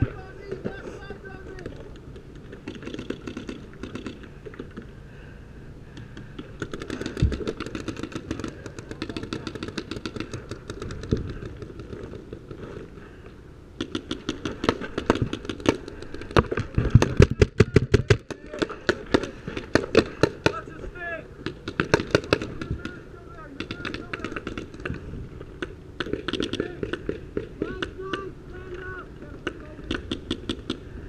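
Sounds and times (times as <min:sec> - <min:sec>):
paintball markers firing: 0:01.6 - 0:04.9, 0:05.9 - 0:12.6, 0:13.8 - 0:20.6, 0:21.4 - 0:30.9.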